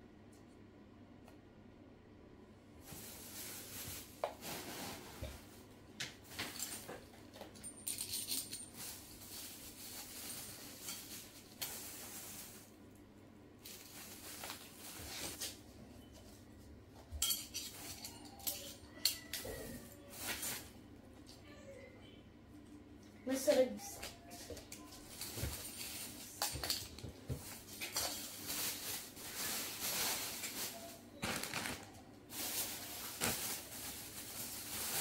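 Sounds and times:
dishes and utensils clinking: 17.1s - 19.7s, 25.2s - 28.6s.

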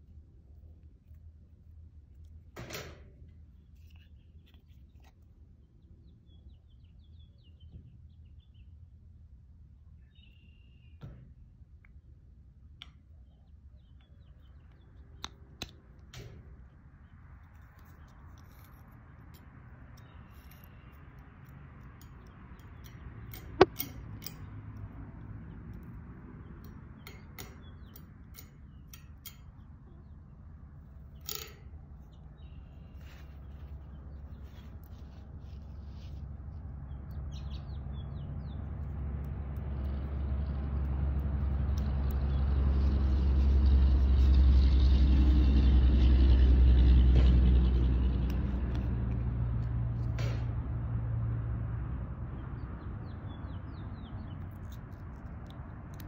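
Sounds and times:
passing vehicle rumble: 33.0s - 56.0s.

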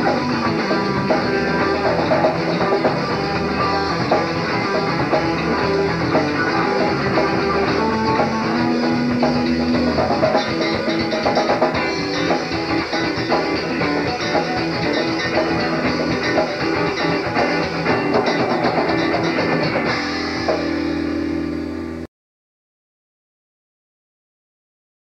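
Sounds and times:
rock band playing: 0.0s - 22.1s.

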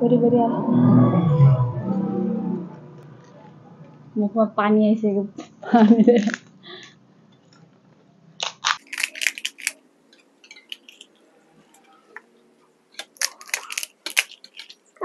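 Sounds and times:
crisp shells cracking and crunching: 8.4s - 11.2s, 12.9s - 15.0s.

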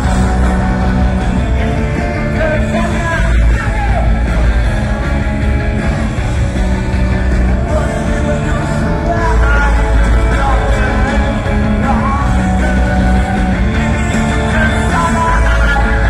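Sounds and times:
rock band playing live: 0.0s - 16.0s
person singing: 2.2s - 5.0s, 7.4s - 16.0s.

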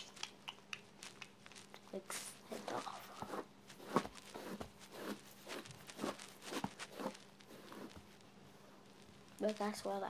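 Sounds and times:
hairbrush through curly hair: 2.5s - 8.0s.

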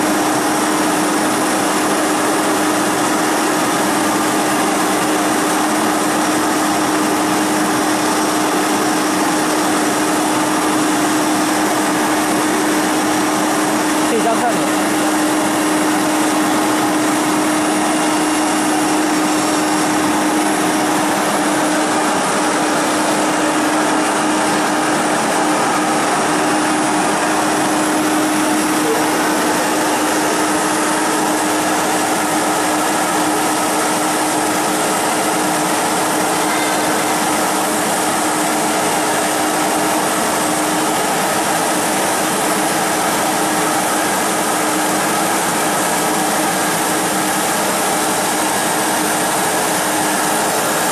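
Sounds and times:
router spindle whirring: 12.8s - 41.4s.

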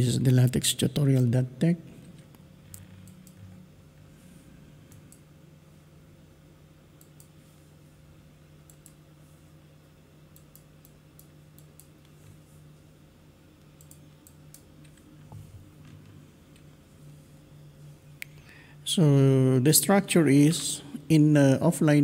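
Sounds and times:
low steady hum: 0.0s - 22.0s
computer mouse clicks: 2.7s - 3.4s, 8.6s - 9.0s, 13.7s - 15.0s.

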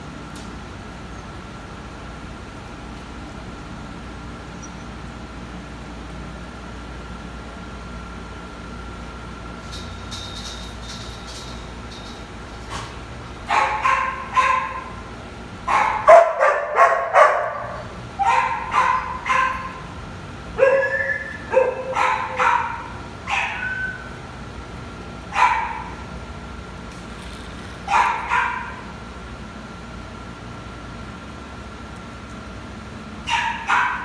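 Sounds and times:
dog barking: 13.5s - 15.0s, 15.7s - 19.8s, 20.6s - 24.0s, 25.3s - 26.0s, 27.9s - 28.8s, 33.3s - 34.0s.

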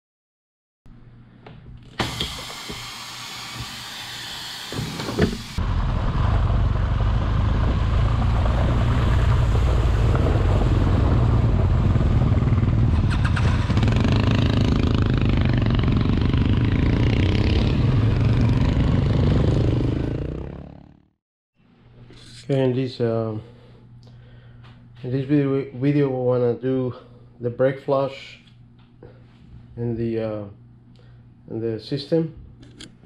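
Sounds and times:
vacuum brake bleeder hissing: 1.9s - 5.6s
motorcycle engine running: 10.1s - 21.1s.

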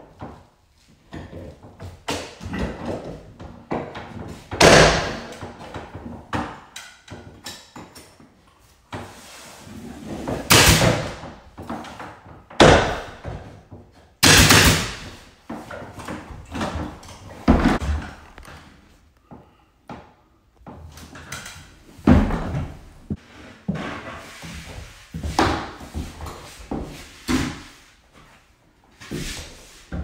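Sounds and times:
nail gun firing: 10.5s - 11.2s, 14.2s - 15.2s.

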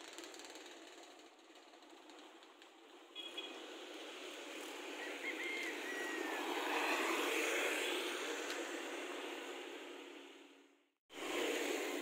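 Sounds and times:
passing vehicle rushing: 3.5s - 10.4s.

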